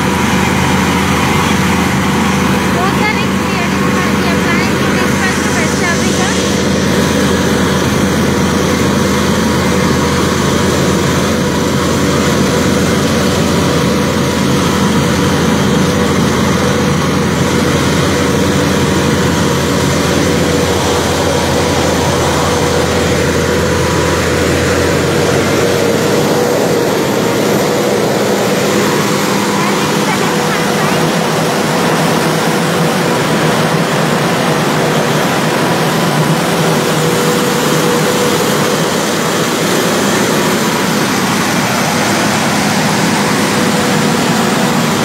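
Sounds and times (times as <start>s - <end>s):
heavy engine rumbling: 0.0s - 45.0s.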